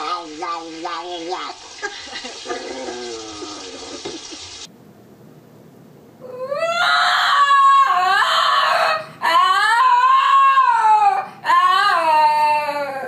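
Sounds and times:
water running in a sink: 0:00.0 - 0:04.7
dog howling: 0:06.2 - 0:13.0.

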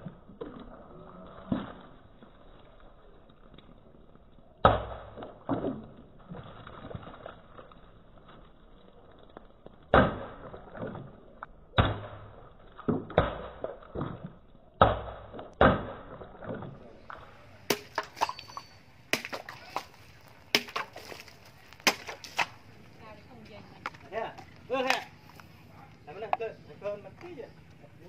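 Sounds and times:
blade chopping plastic bottles: 0:11.8 - 0:22.7.

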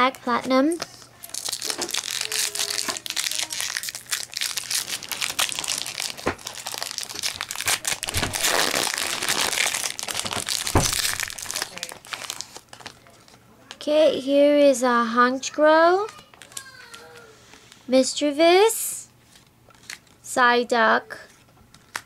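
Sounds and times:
foil wrapper tearing and crinkling: 0:01.2 - 0:13.0, 0:21.7 - 0:22.0.

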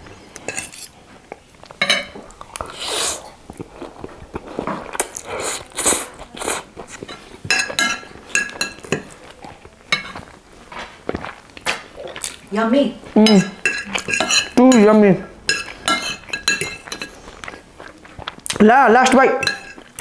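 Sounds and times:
forks scraping and clinking on plate: 0:00.4 - 0:01.0, 0:04.6 - 0:10.3, 0:13.2 - 0:17.7, 0:19.4 - 0:20.0
wet chewing: 0:01.2 - 0:20.0
slurping noodles: 0:02.6 - 0:07.1.

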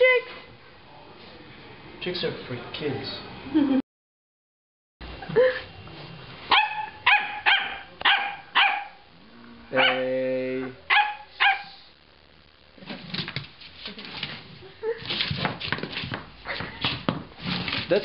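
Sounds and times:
dog barking: 0:06.5 - 0:09.0, 0:09.8 - 0:10.1, 0:10.9 - 0:11.8.

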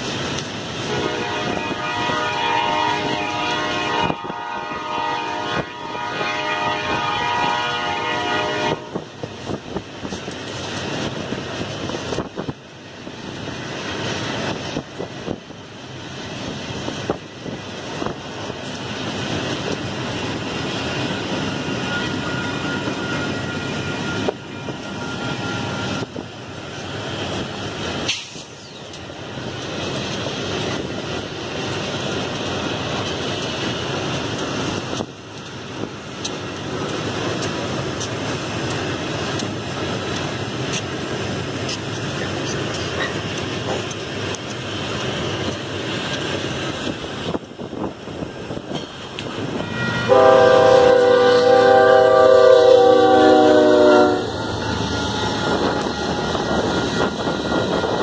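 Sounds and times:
freight locomotives rumbling past: 0:00.0 - 0:58.0
locomotive horn blowing: 0:00.9 - 0:09.1, 0:49.6 - 0:55.9.

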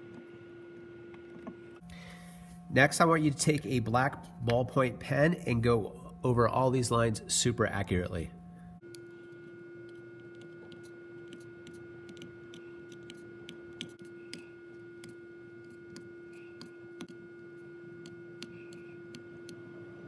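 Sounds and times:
steady hum: 0:00.0 - 0:20.0
pen tip clicking on wood: 0:10.2 - 0:14.4.

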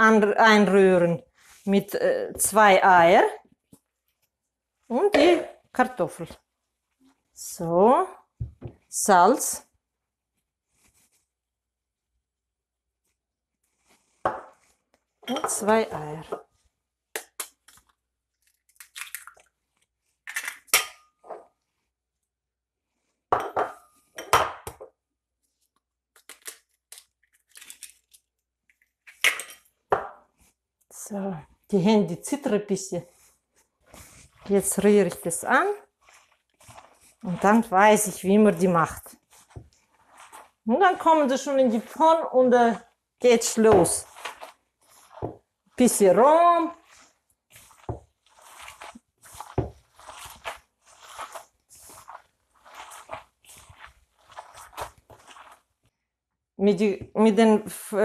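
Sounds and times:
hands squishing potato dough: 0:33.1 - 0:56.0.

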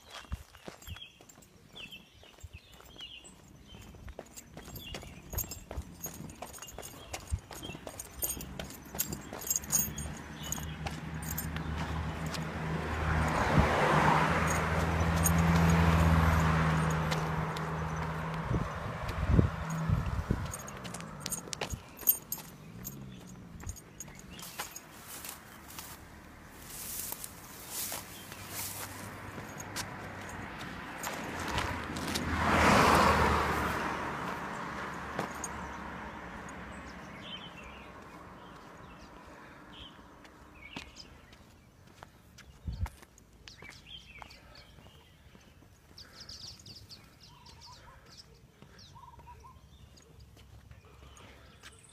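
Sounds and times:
vehicle passing: 0:02.7 - 0:42.3
car driving past: 0:07.6 - 0:40.7.

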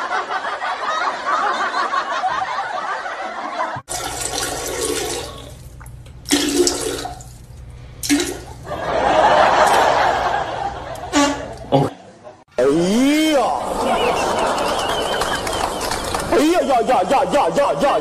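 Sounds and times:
toilet flushing: 0:03.9 - 0:10.1.

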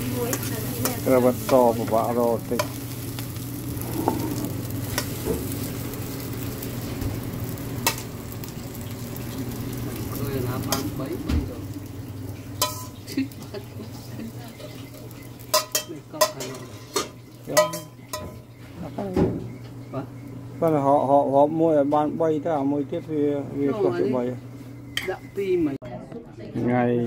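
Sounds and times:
rice sizzling in a wok: 0:00.0 - 0:22.7, 0:23.5 - 0:25.7
metal ladle scraping a pan: 0:15.5 - 0:18.3.

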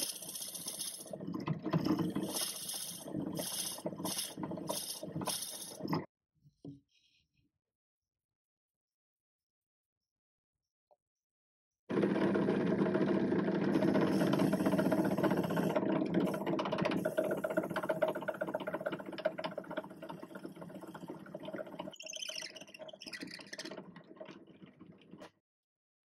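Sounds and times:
drill press boring into wood: 0:00.0 - 0:01.2, 0:01.9 - 0:05.8, 0:11.9 - 0:20.9.

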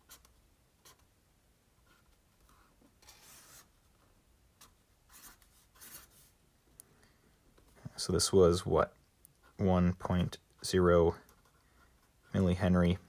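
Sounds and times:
pen scratching on paper: 0:01.8 - 0:03.7, 0:05.1 - 0:06.3.

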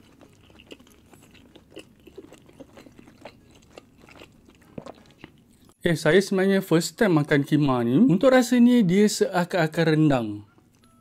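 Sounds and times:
person chewing food: 0:00.0 - 0:05.8.

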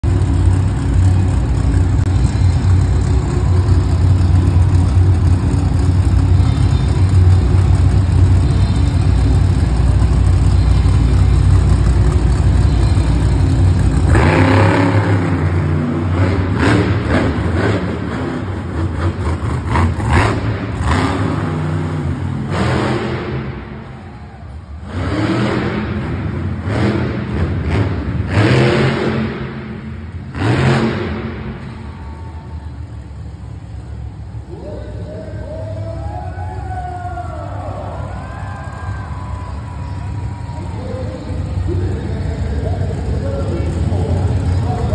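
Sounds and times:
monster truck engine revving: 0:00.0 - 0:44.9.

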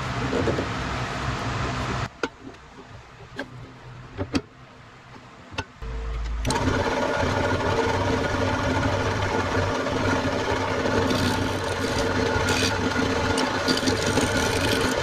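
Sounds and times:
lathe motor humming: 0:05.9 - 0:15.0.

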